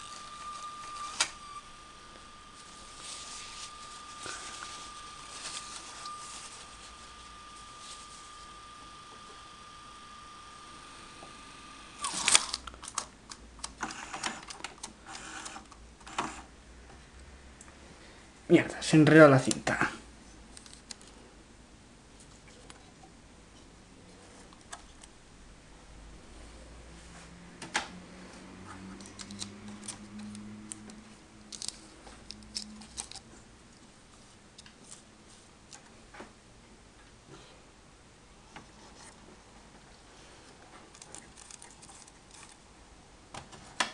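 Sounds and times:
tape mechanism whine: 0:00.0 - 0:13.0, 0:27.6 - 0:33.4
low steady hum: 0:00.0 - 0:13.7
tape mechanism clicking and clattering: 0:12.0 - 0:16.3, 0:29.0 - 0:33.3.

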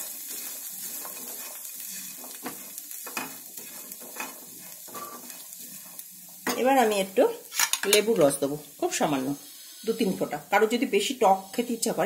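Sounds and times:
spatula scraping a frying pan: 0:00.0 - 0:08.0
light sizzle: 0:00.0 - 0:12.0.

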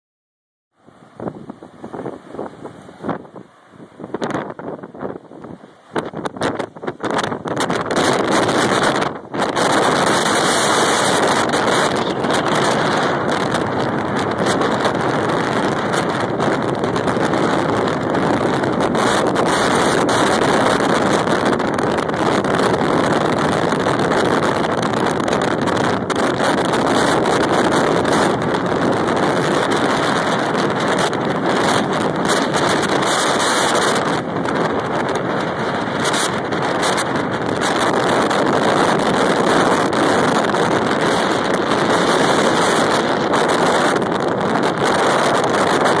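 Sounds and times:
wind buffeting microphone: 0:00.8 - 0:46.0
surf breaking on rocks: 0:01.0 - 0:23.6.

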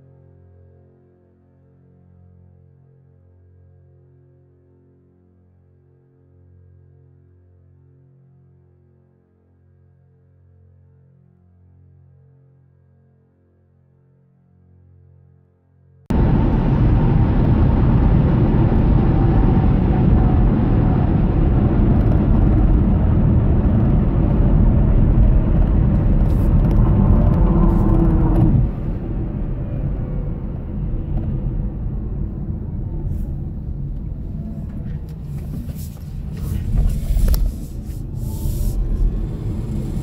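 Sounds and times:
road and tyre noise in car cabin: 0:16.1 - 0:40.0.

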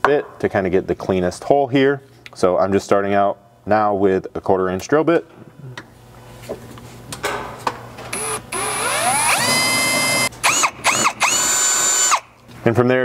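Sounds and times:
cordless drill whining: 0:08.2 - 0:12.2.

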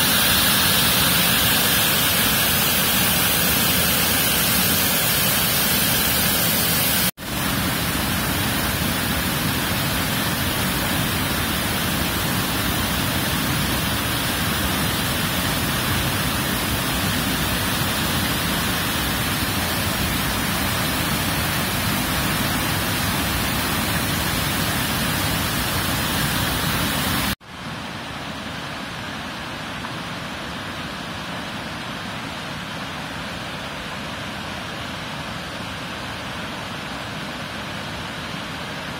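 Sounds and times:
waterfall rushing: 0:00.0 - 0:27.4.

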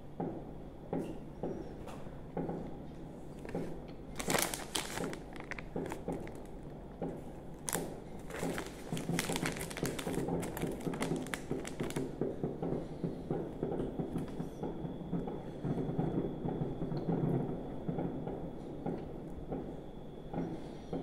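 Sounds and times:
plastic wrapper crinkling: 0:03.4 - 0:06.8, 0:07.5 - 0:12.2.

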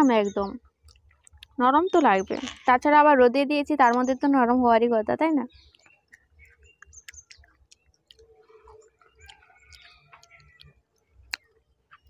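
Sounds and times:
wet mouth clicks and smacks: 0:00.9 - 0:01.6, 0:05.6 - 0:11.5
person chewing soft fruit: 0:05.6 - 0:11.6.

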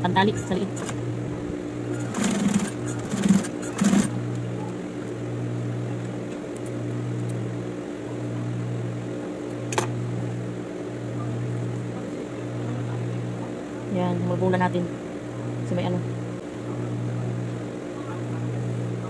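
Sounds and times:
sewing machine motor humming: 0:01.8 - 0:04.4.

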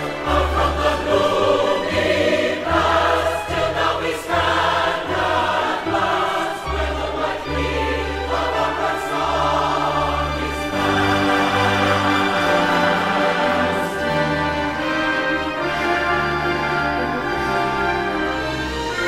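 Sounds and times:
choir singing: 0:00.0 - 0:19.0
instrumental accompaniment: 0:00.0 - 0:19.0.

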